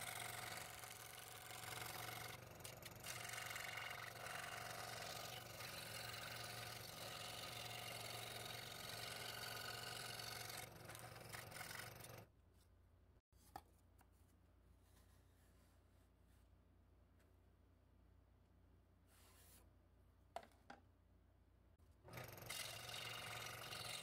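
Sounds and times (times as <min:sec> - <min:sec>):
scroll saw cutting plywood: 0:00.0 - 0:12.2, 0:22.1 - 0:24.0.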